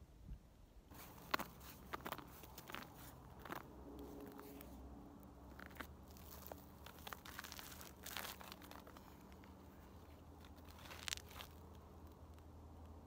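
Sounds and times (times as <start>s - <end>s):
footsteps crunching on ice: 0.9s - 4.5s, 5.5s - 9.6s, 10.4s - 11.8s.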